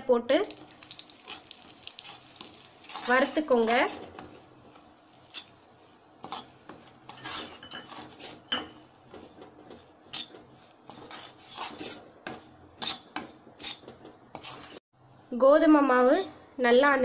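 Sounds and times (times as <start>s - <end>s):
metal spatula scraping a pan: 0.9s - 14.8s.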